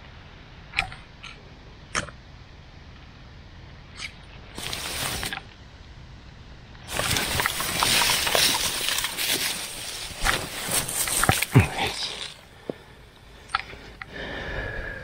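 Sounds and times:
grass and clothing rustling: 0:04.1 - 0:05.6, 0:06.8 - 0:14.8.

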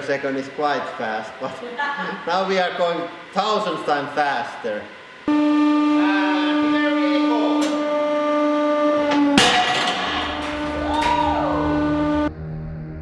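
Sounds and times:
hydraulic press tone: 0:04.9 - 0:12.3.

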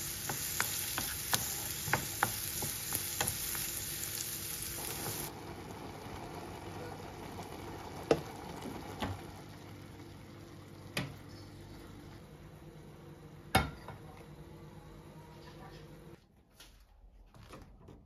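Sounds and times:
wooden spoon knocking on pot: 0:00.2 - 0:03.4.

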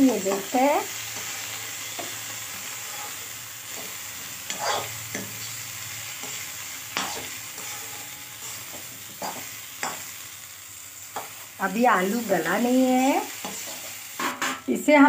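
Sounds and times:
vegetables sizzling in pan: 0:00.0 - 0:15.0
metal spatula scraping pan: 0:01.1 - 0:05.4, 0:06.2 - 0:10.0.

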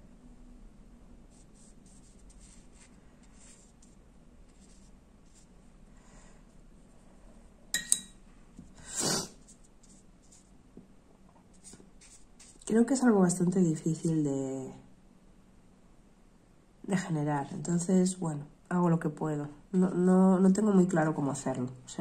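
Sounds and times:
brush strokes on paper: 0:01.3 - 0:05.6, 0:08.6 - 0:10.6, 0:11.5 - 0:13.1
paintbrush clinking against glass jar: 0:07.7 - 0:08.2.

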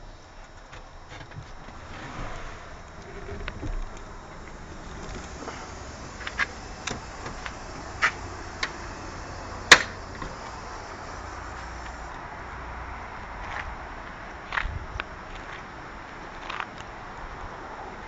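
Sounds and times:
truck cab clicks and knocks: 0:02.8 - 0:12.0.

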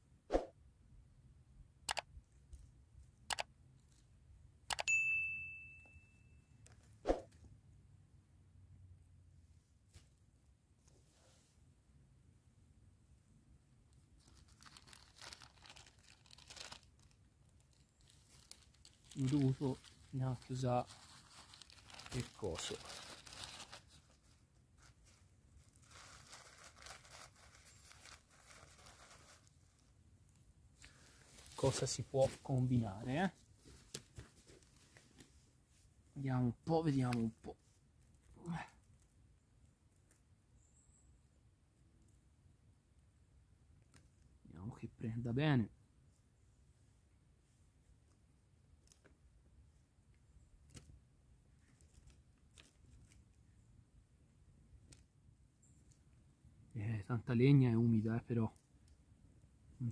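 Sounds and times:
notification bell ding: 0:04.8 - 0:06.4
twig fire crackling: 0:13.9 - 0:32.8.

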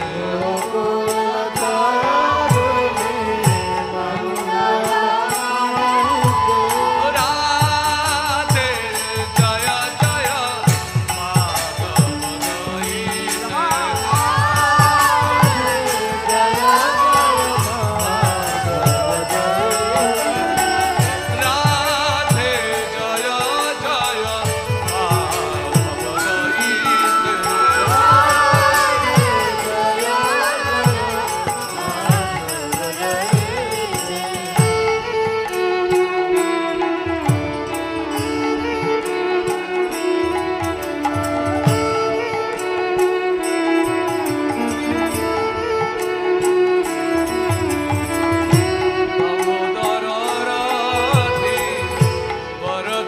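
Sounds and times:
man singing: 0:00.0 - 0:43.1, 0:44.1 - 0:53.0
harmonium: 0:00.0 - 0:53.0
high percussion beat: 0:05.4 - 0:36.5.

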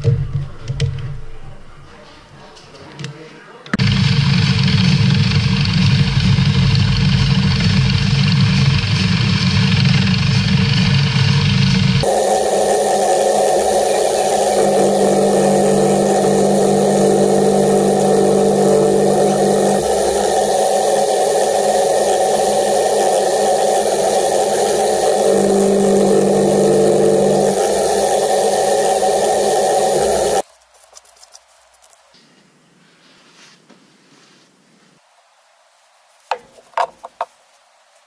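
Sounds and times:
milling machine cutting metal: 0:12.0 - 0:30.4.

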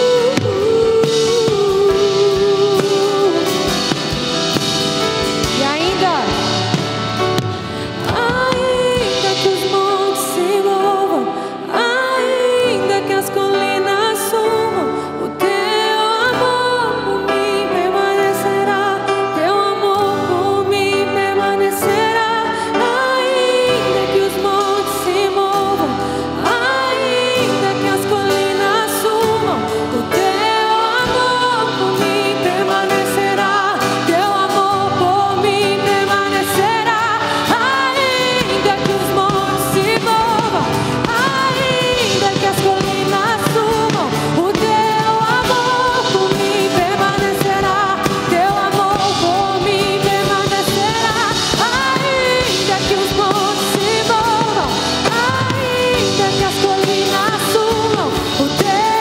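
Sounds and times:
women singing: 0:00.0 - 0:04.7, 0:07.9 - 0:59.0
bass guitar: 0:00.0 - 0:10.7, 0:23.7 - 0:59.0
drums: 0:00.0 - 0:59.0
electric and acoustic guitars: 0:00.0 - 0:59.0
keyboard: 0:00.0 - 0:59.0.

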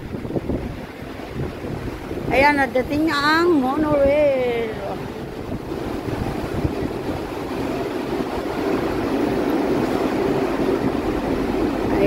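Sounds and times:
monorail train rumbling hum: 0:00.0 - 0:12.0.

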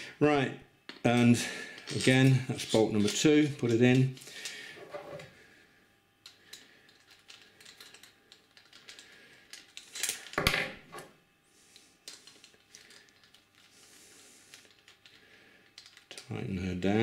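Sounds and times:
clatter of handling tools: 0:00.9 - 0:05.3, 0:06.2 - 0:10.7.

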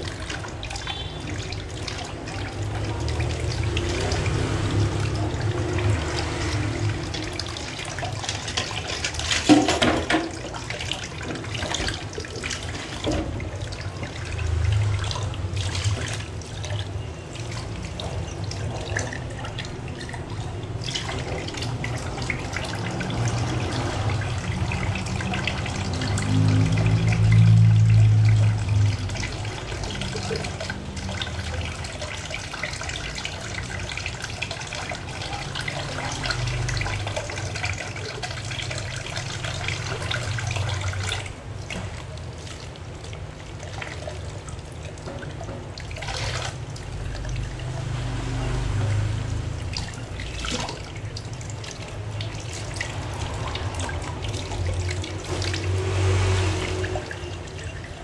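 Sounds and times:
tap running into steel sink: 0:08.6 - 0:10.4.

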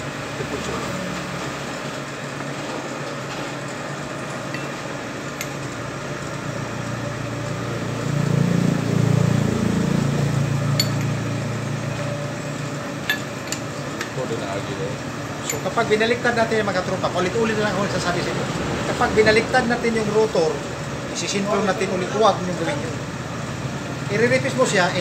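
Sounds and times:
low machine hum: 0:00.0 - 0:25.0
metal clinks of tool clamping: 0:10.8 - 0:11.2, 0:13.1 - 0:14.2, 0:15.4 - 0:15.7.

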